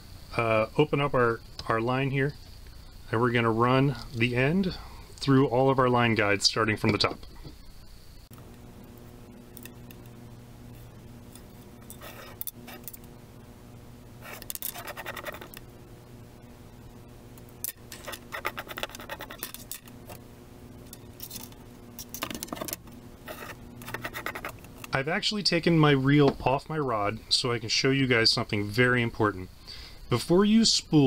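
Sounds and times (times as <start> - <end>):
steady low hum: 0.0 - 31.0
scratchy rustling of fishing line: 11.4 - 13.0, 14.2 - 15.6, 17.9 - 20.2, 21.1 - 24.9.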